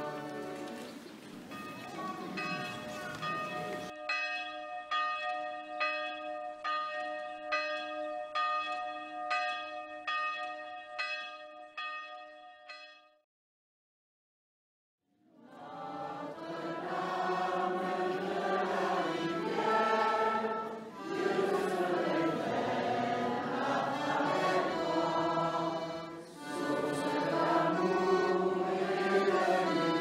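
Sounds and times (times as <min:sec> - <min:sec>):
choir singing a hymn: 0:00.0 - 0:01.0, 0:15.3 - 0:30.0.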